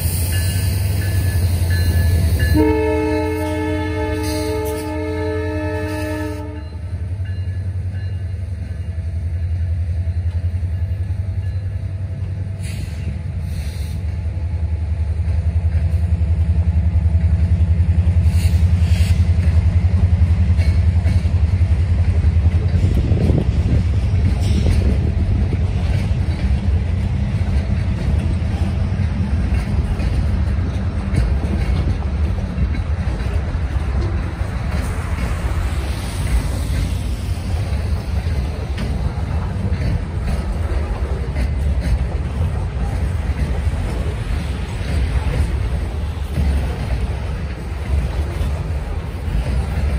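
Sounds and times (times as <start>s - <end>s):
locomotive horn: 2.4s - 7.0s.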